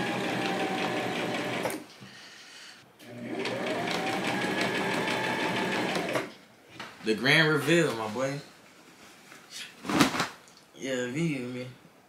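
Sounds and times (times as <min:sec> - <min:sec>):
sewing machine motor whine: 0:00.0 - 0:01.8, 0:03.1 - 0:06.3.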